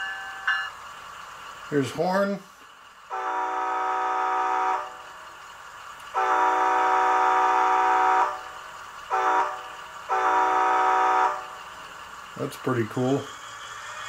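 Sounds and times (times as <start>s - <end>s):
model train horn from small speaker: 3.1s - 5.0s, 6.1s - 8.5s, 9.1s - 11.6s.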